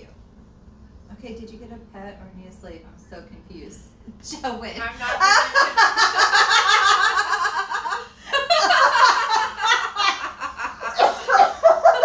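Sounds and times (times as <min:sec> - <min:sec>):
women giggling: 0:05.0 - 0:12.0.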